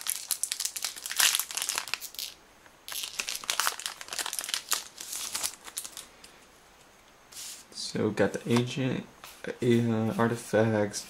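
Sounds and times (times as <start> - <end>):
foil wrapper crinkling and tearing: 0.0 - 6.1.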